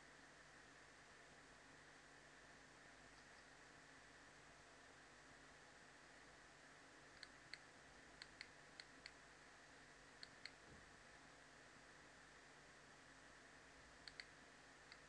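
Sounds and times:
low steady hiss: 0:00.0 - 0:15.0
mouse button clicking: 0:14.0 - 0:14.3.

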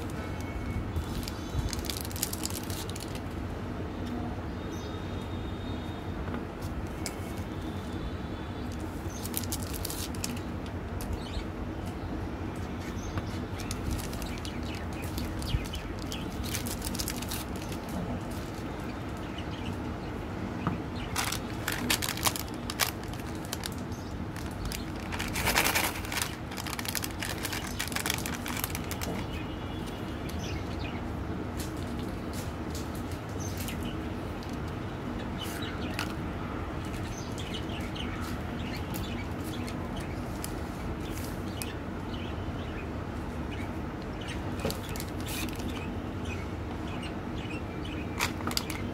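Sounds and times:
foil wrappers crinkling and tearing: 0:00.0 - 0:03.2, 0:09.2 - 0:10.5, 0:13.6 - 0:18.7, 0:21.1 - 0:29.4
low background hum: 0:00.0 - 0:48.9.

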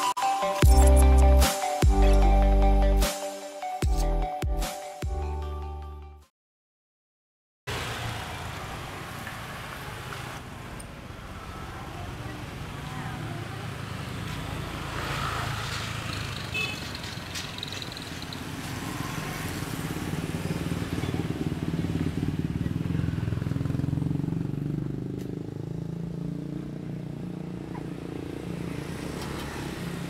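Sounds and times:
motorcycle engines running: 0:08.4 - 0:30.0.

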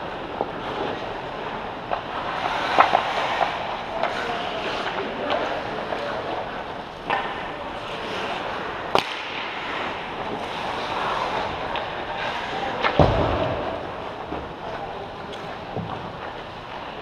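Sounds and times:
puck cracks: 0:01.8 - 0:14.6
skates hissing on ice: 0:02.0 - 0:06.2, 0:07.8 - 0:12.8.

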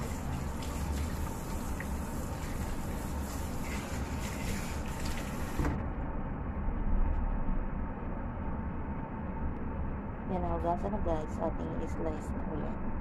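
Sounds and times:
tap water running over meat: 0:00.0 - 0:05.6
low rumble: 0:05.7 - 0:13.0.

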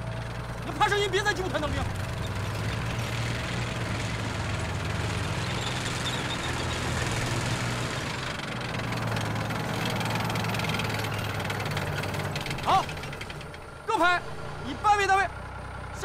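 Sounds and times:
tank engine humming: 0:00.0 - 0:16.0.

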